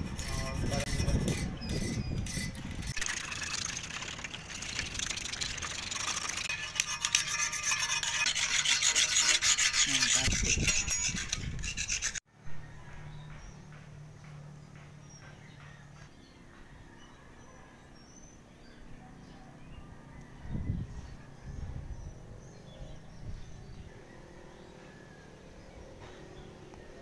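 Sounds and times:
rapid scratchy rubbing strokes: 0:00.0 - 0:12.2.

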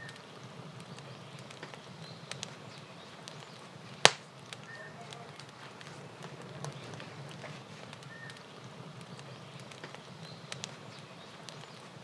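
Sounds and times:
firewood crackling in stove: 0:00.0 - 0:12.0
loud sharp pop: 0:04.0 - 0:04.3.

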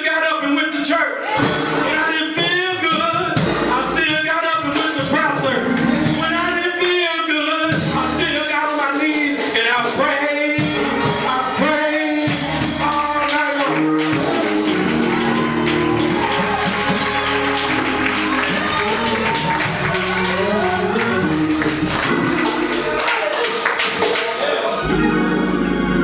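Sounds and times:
church music: 0:01.6 - 0:26.0
preacher chanting into microphone: 0:01.9 - 0:14.7.

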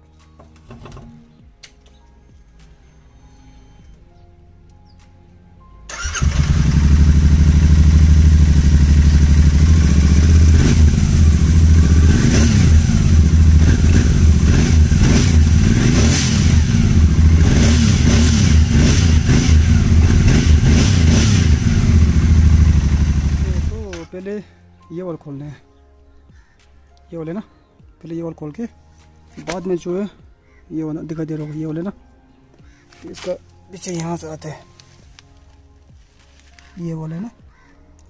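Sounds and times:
motorcycle engine revving: 0:05.9 - 0:23.9
motorcycle engine starting and idling: 0:05.9 - 0:24.1.

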